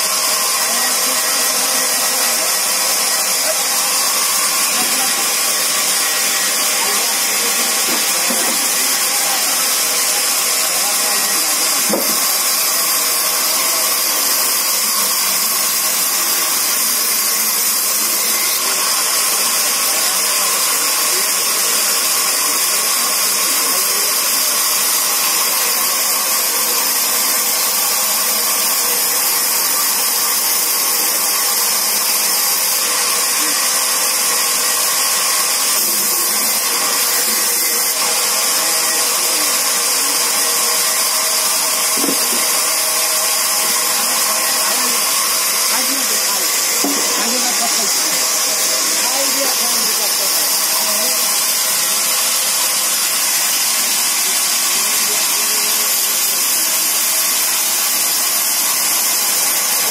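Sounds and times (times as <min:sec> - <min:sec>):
band saw whirring: 0:00.0 - 0:59.9
knock: 0:11.9 - 0:12.2, 0:42.0 - 0:42.4.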